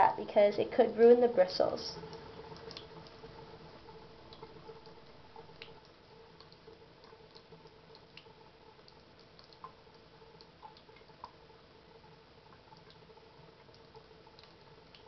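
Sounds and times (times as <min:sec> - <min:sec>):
tap water trickling: 0:02.0 - 0:11.4.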